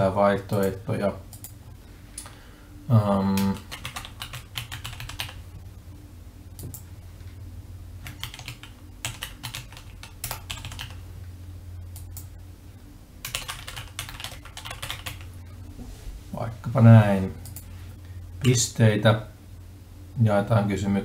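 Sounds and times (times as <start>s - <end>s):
typing on computer keyboard: 3.4s - 5.4s, 8.0s - 11.0s, 13.2s - 15.3s.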